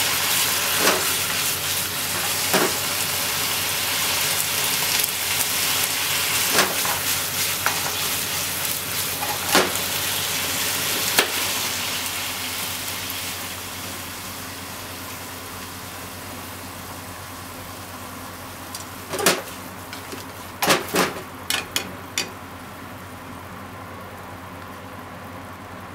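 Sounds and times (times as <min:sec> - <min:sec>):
food sizzling in frying pan: 0:00.0 - 0:23.5
chopsticks tapping pan: 0:21.5 - 0:22.4.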